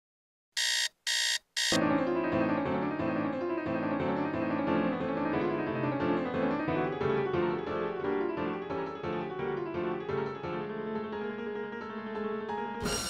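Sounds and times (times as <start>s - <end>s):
alarm clock beeping: 0.6s - 1.8s
piano music: 1.8s - 13.0s.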